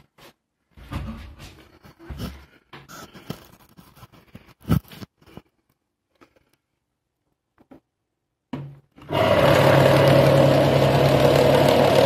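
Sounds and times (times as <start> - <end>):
clicks scrapes and rustles: 1.6 - 6.7.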